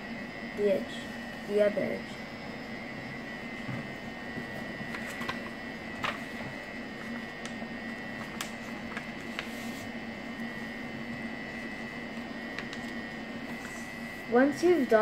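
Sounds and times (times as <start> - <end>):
steady background hum: 0.0 - 15.0
paper rustling and tapping: 4.4 - 9.9, 12.1 - 13.0.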